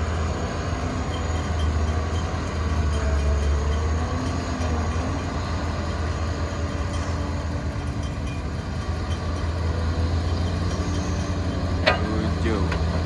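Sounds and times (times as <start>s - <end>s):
excavator diesel engine hum: 0.0s - 13.0s.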